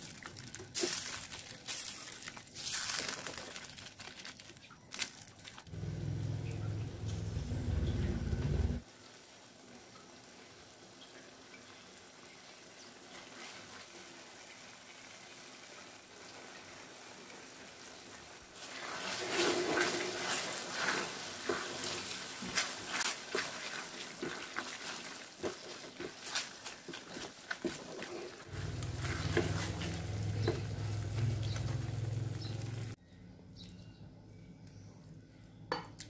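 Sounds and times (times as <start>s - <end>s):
faint steady hiss: 5.7s - 33.0s
food squelching: 20.4s - 31.9s.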